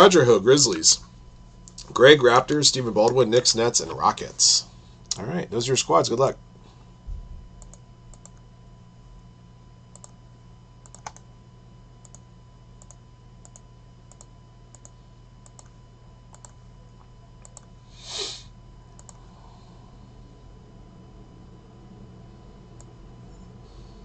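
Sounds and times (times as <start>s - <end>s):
steady low hum: 0.0s - 24.0s
computer clicking: 7.6s - 8.4s, 9.9s - 10.2s, 10.8s - 11.3s, 12.0s - 16.6s, 17.4s - 17.7s, 19.0s - 19.2s.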